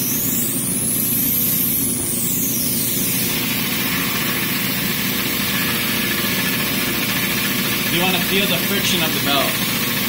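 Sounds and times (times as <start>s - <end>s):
sample grinding on belt: 3.0s - 10.0s
belt grinder motor hum: 3.2s - 10.0s.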